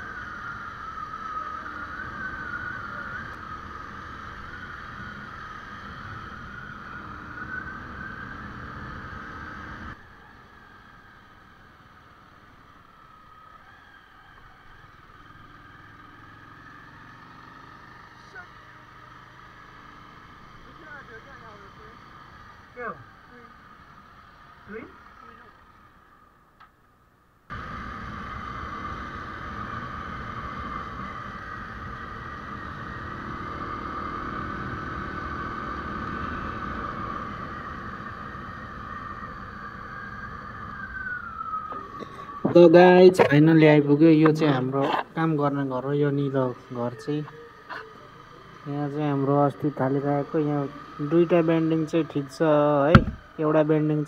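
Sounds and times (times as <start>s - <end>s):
motorcycle riding: 0.0s - 26.8s, 27.5s - 54.0s
road and wind noise: 0.0s - 54.0s
deep steady engine hum: 15.0s - 54.0s.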